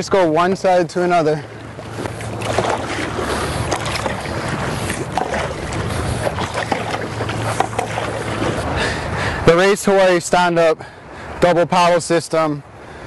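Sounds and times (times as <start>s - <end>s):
paddle strokes: 1.1s - 9.4s
water splashing around paddleboard: 1.4s - 9.2s
wind buffeting microphone: 1.4s - 9.5s.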